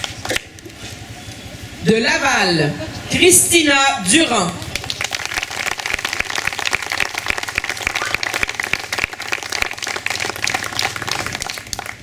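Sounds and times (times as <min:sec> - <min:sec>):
crowd applauding: 0:04.5 - 0:12.0.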